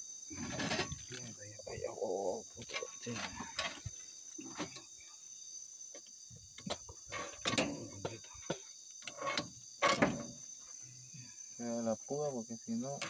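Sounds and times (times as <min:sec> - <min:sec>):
night insects chirring: 0:00.0 - 0:13.0
knocks and scrapes in a boat: 0:00.3 - 0:01.3, 0:06.8 - 0:10.4.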